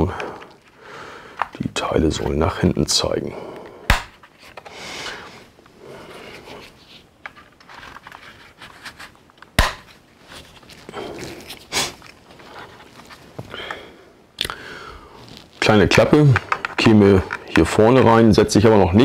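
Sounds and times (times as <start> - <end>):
hard plastic toy parts clicking: 16.0 - 18.1.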